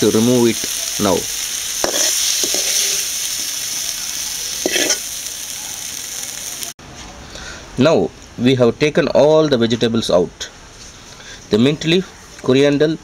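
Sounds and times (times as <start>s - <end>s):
oil sizzling in a pan: 0.0s - 6.8s.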